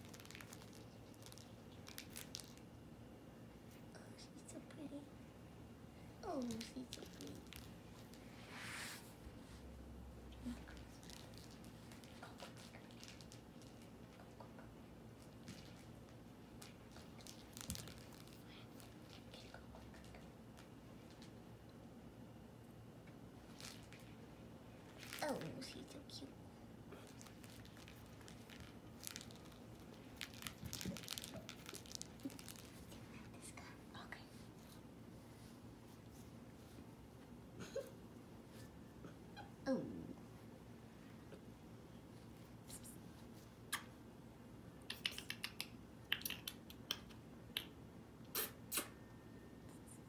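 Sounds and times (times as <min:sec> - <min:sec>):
cat toy crinkling rustles: 0:00.0 - 0:02.7, 0:06.2 - 0:08.4, 0:10.4 - 0:14.4, 0:15.2 - 0:21.4, 0:23.4 - 0:26.1, 0:27.0 - 0:36.9.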